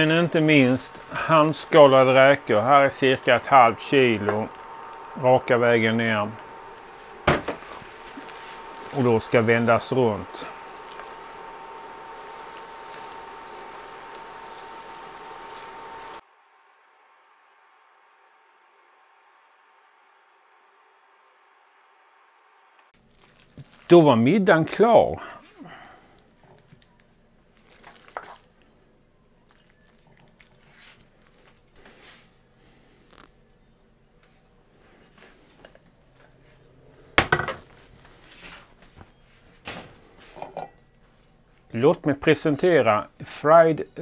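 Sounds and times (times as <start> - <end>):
food sizzling in a pot: 0.0 - 16.2
faint food and utensil handling: 23.0 - 24.0.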